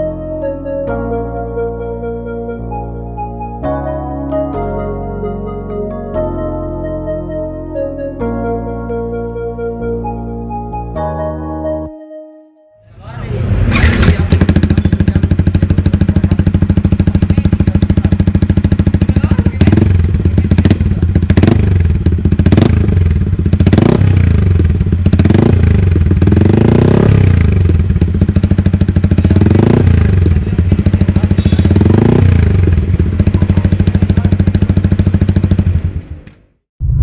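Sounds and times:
motorcycle engine idling: 13.3s - 36.5s
motorcycle throttle blips: 13.6s - 36.5s.

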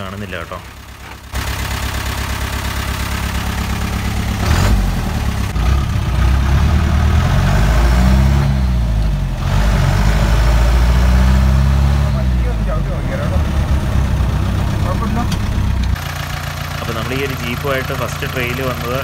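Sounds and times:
jeep engine idling and accelerating: 0.0s - 19.0s.

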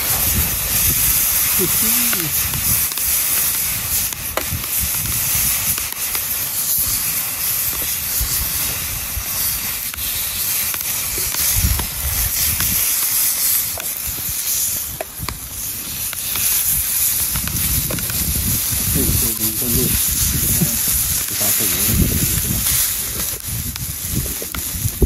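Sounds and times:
burgers sizzling in a frying pan: 0.0s - 25.0s
sharp ticks: 1.0s - 6.4s.

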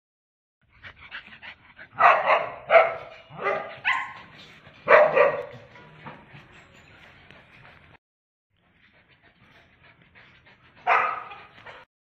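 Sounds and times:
dog barking: 2.0s - 5.7s, 10.8s - 11.8s.

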